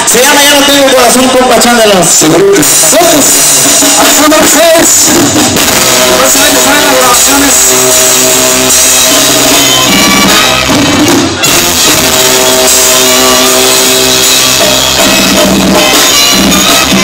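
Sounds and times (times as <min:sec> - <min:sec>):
brass band playing: 0:00.0 - 0:17.0
drum kit: 0:00.0 - 0:17.0.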